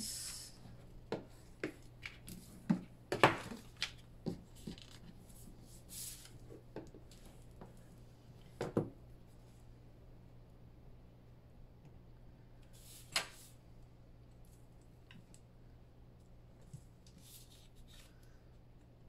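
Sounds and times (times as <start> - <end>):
paper crackles and taps: 1.1 - 5.2.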